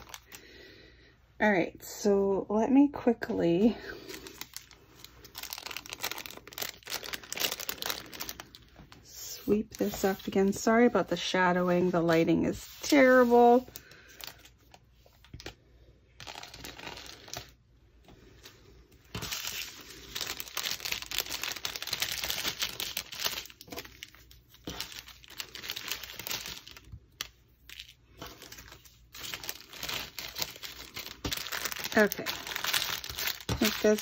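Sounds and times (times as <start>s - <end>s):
plastic zip bag crinkling: 0.0s - 0.5s, 3.8s - 11.3s, 16.2s - 17.6s, 19.1s - 34.0s.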